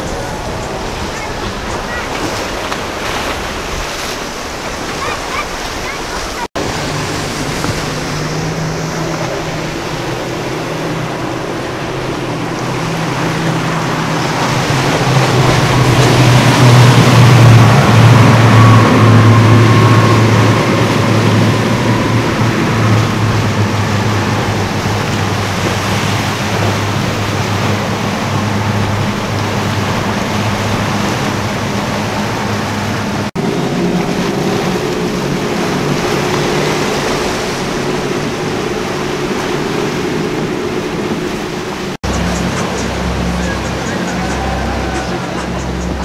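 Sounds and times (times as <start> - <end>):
higher boat engine passing: 0.0 - 46.0
hull spray and waves: 0.0 - 46.0
outboard motors droning: 0.0 - 46.0.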